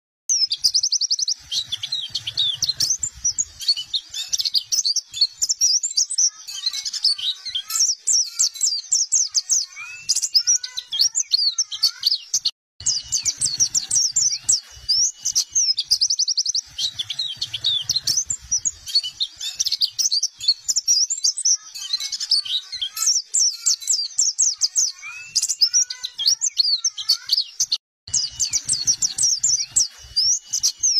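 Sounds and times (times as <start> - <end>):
bird twittering song: 0.3 - 30.9.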